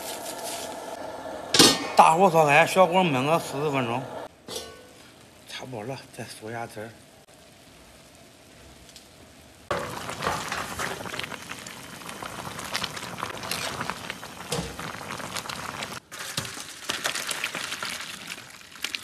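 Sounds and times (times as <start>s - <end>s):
sauce bubbling and spattering: 9.7s - 19.0s.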